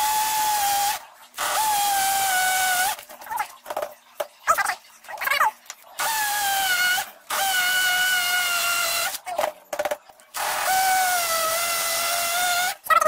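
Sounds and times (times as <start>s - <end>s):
impact drill boring into stone: 10.4s - 12.8s.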